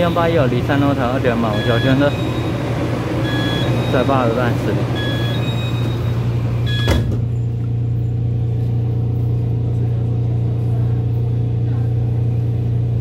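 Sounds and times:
electric train hum: 0.0 - 13.0
high beeping tones: 1.5 - 2.6, 3.2 - 7.0.

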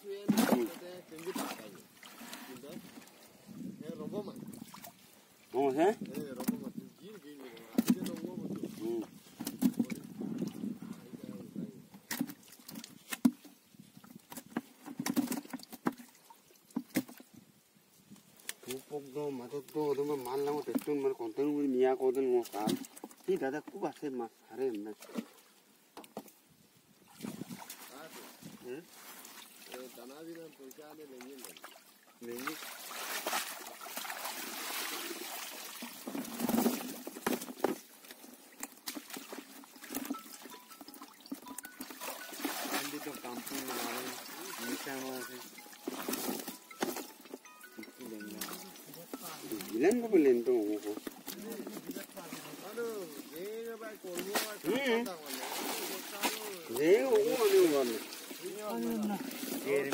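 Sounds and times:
water trickling and splashing: 0.0 - 59.9
hands splashing in shallow water: 32.3 - 37.0, 54.2 - 58.5.

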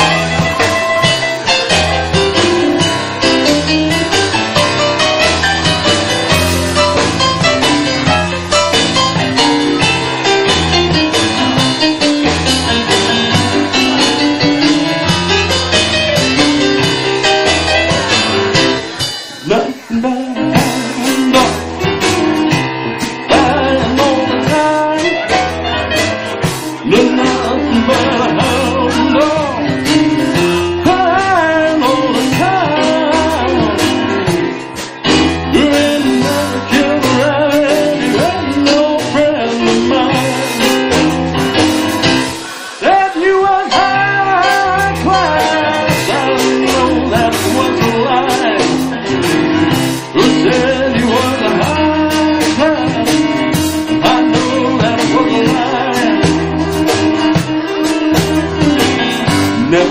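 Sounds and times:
boogie-woogie band playing: 0.0 - 59.9
man singing: 19.2 - 25.6, 26.6 - 34.4, 35.1 - 41.2, 42.6 - 59.9.

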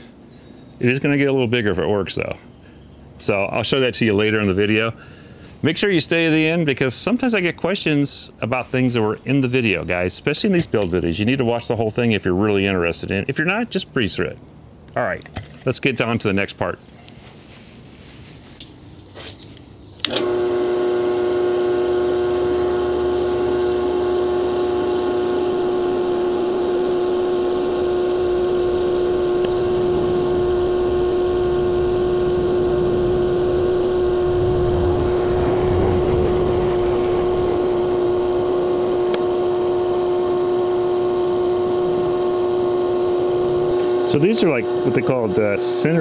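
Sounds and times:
drill press motor hum: 20.0 - 46.0
drill bit drilling metal: 20.1 - 46.0.

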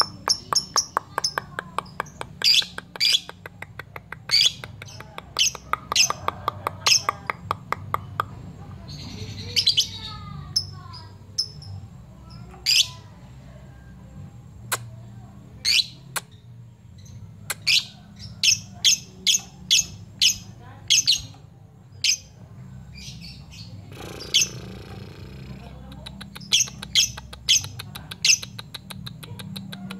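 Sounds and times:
bird chirping high-pitched: 0.0 - 3.5, 8.8 - 13.1, 15.6 - 29.9.

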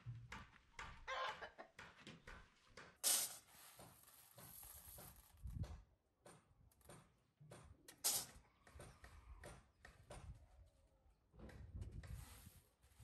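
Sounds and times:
clicks of dry beans in tray: 3.0 - 5.3
scraping rustle: 3.1 - 5.4.

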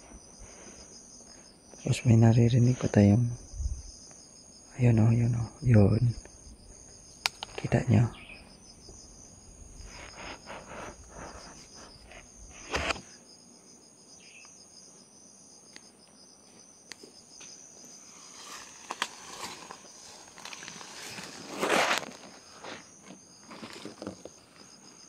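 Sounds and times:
insects trilling: 0.0 - 25.0
leaves and brush rustling: 17.4 - 24.6.

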